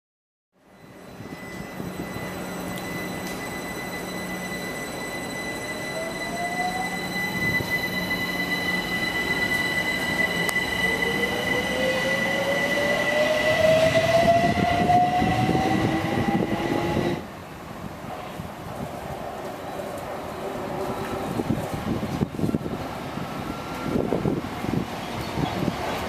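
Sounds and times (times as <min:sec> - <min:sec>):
steady high tone: 0:00.6 - 0:17.3
wheel and rail noise: 0:00.7 - 0:26.0.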